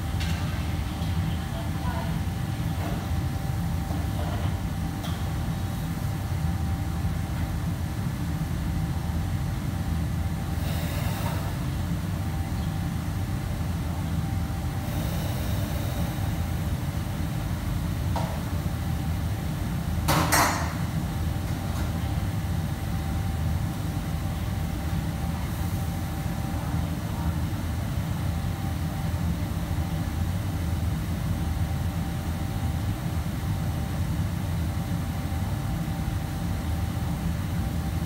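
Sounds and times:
faint hum: 0:00.0 - 0:38.0.

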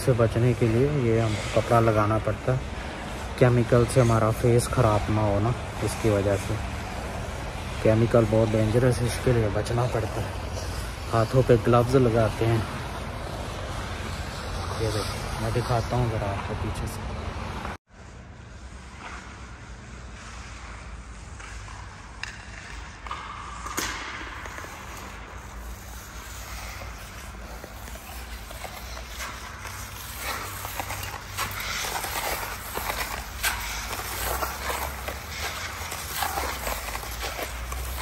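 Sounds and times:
footsteps on concrete floor: 0:24.4 - 0:38.0.

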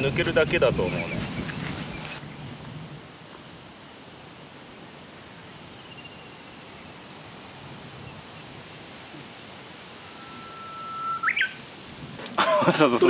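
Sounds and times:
outdoor background hiss: 0:00.0 - 0:13.0
distant bird chirps: 0:04.6 - 0:07.4, 0:08.0 - 0:11.7.

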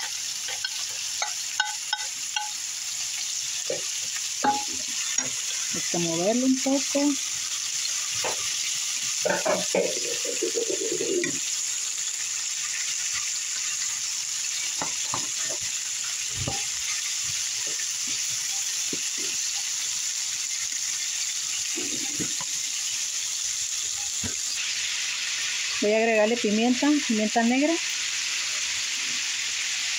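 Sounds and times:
vegetables sizzling in frying pan: 0:00.0 - 0:29.9
spatula knocking against pan: 0:00.6 - 0:02.6, 0:04.4 - 0:05.3.

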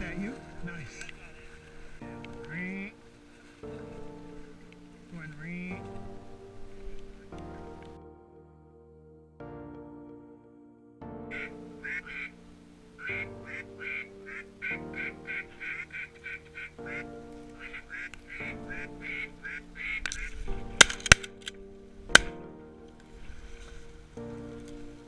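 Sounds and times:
ducks quacking rapidly: 0:11.3 - 0:12.4, 0:13.0 - 0:20.3.

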